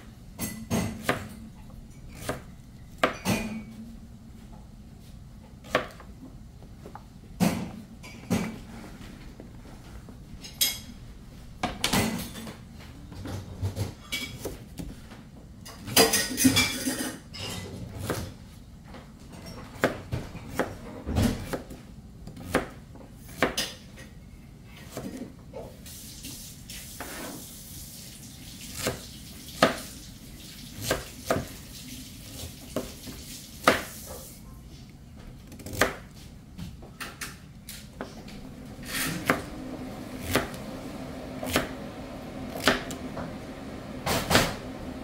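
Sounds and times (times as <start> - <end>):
knife chopping on plastic board: 0.7 - 1.4, 2.1 - 3.6, 5.6 - 6.1, 19.7 - 23.7, 35.4 - 36.1, 40.2 - 40.7, 41.4 - 41.8, 42.5 - 43.0.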